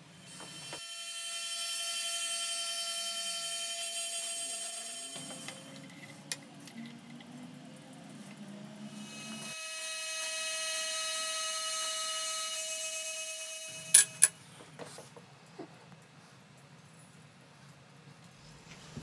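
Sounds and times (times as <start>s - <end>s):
drill press cutter whine: 0.0s - 14.3s.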